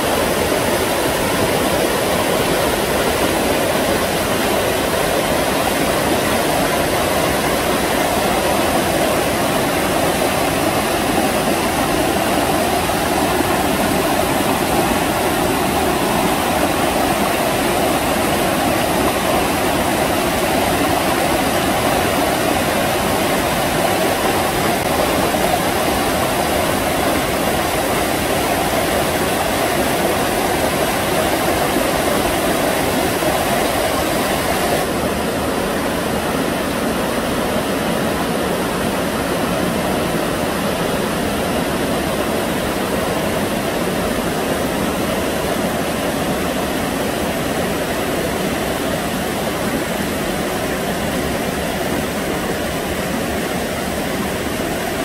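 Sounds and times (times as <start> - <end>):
stream rushing over boulders: 0.0 - 55.0.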